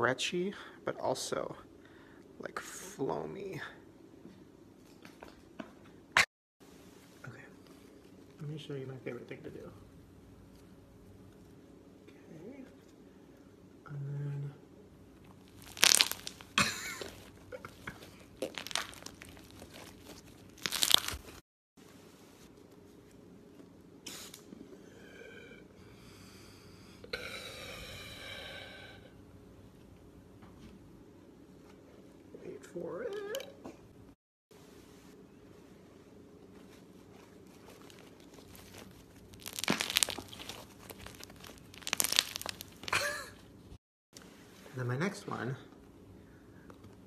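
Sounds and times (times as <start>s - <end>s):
slime squelching and crackling: 15.3s - 21.4s, 37.0s - 43.4s.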